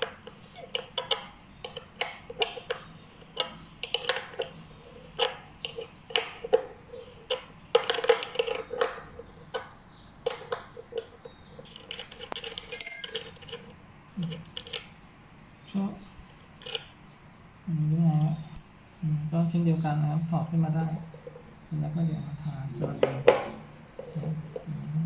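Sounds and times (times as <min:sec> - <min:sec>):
small metal clicks and clinks: 0:11.9 - 0:13.6, 0:18.2 - 0:18.8.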